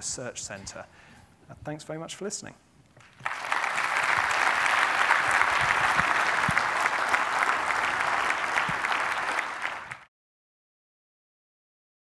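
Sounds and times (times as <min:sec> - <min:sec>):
audience applauding: 0:03.0 - 0:10.1.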